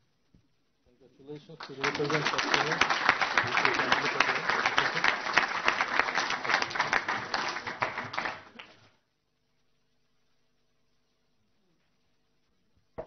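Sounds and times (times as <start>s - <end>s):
audience applauding: 1.5s - 8.9s.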